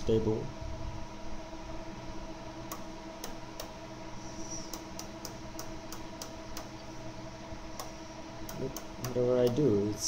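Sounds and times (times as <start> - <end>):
low electrical hum: 0.0 - 10.0
control switch clicks: 2.7 - 3.7, 4.7 - 6.8, 7.8 - 9.7.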